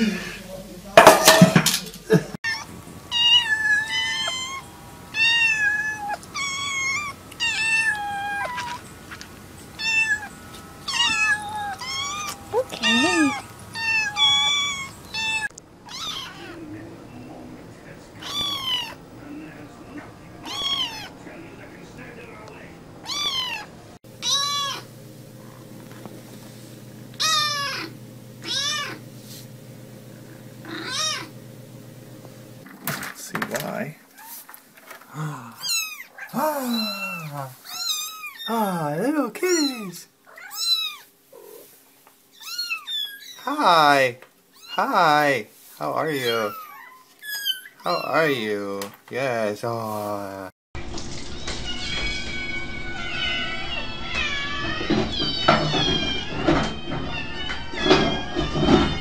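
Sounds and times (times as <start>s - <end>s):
kittens meowing: 2.4s - 8.9s, 9.7s - 16.7s, 18.2s - 19.0s, 20.4s - 21.2s, 23.0s - 24.9s, 27.2s - 29.0s, 30.6s - 31.4s, 35.2s - 38.7s, 39.5s - 41.7s, 42.3s - 43.9s, 44.5s - 45.1s, 46.1s - 48.6s, 51.4s - 59.0s.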